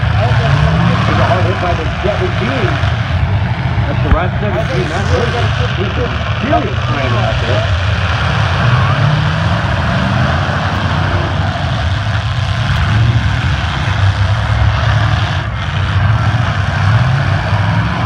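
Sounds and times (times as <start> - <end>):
many car engines running: 0.0 - 18.0.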